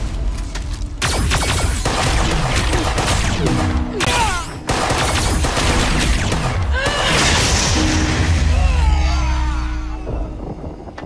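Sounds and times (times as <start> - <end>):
dramatic score music: 0.0 - 11.0
rapid gunfire: 1.0 - 3.8, 4.7 - 6.7.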